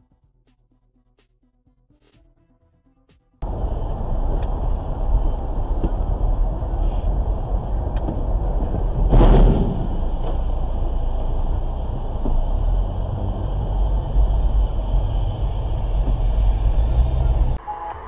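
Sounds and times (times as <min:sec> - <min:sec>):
heavy truck passing: 0:03.4 - 0:17.6
car engine and road noise: 0:03.4 - 0:18.0
loud sudden impact: 0:09.0 - 0:10.5.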